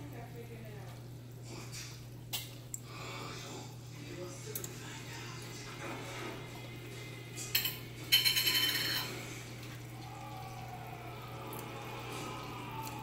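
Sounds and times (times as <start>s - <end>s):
metal kitchenware rattling: 7.5s - 9.2s.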